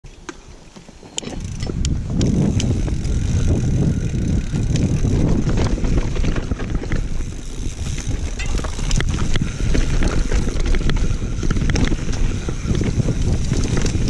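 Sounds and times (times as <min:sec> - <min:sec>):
bike tyres rumbling on dirt: 0:00.4 - 0:14.0
bike rattling over bumps: 0:00.6 - 0:14.0.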